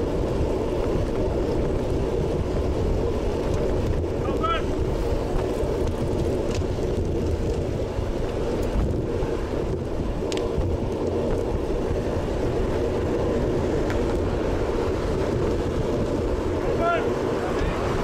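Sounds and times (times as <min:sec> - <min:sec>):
bike tyre and road noise: 0:00.0 - 0:18.0
wind buffeting microphone: 0:00.0 - 0:18.0.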